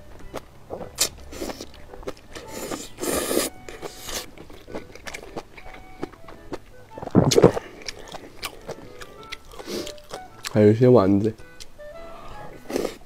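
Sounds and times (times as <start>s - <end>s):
noodles slurped and chewed: 0.7s - 6.2s.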